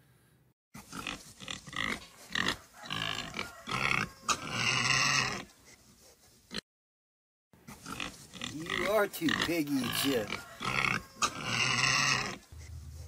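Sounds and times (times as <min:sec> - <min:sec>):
pig grunting: 0:07.7 - 0:13.0.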